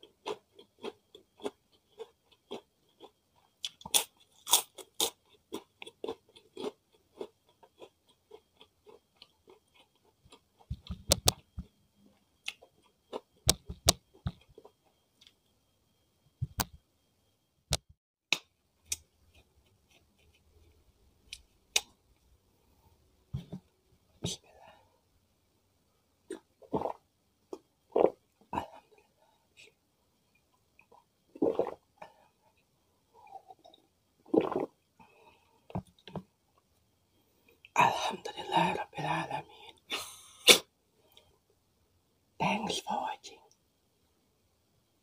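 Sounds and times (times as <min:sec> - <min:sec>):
chewing crispy food: 0:00.0 - 0:15.4, 0:18.8 - 0:22.0.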